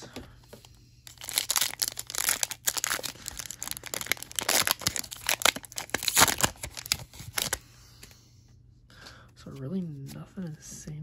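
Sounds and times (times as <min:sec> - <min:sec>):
wrapper tearing and crinkling: 0:01.1 - 0:07.6.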